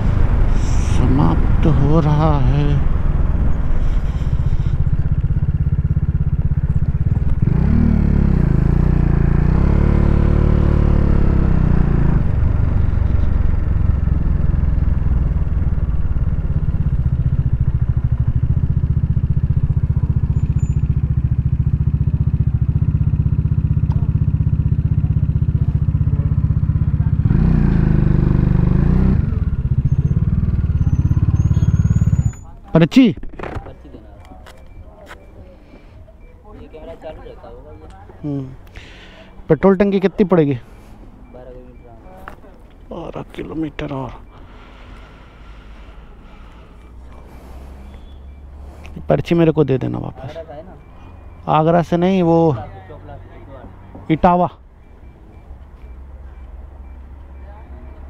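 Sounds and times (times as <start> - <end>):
motorcycle engine running: 0.0 - 32.5.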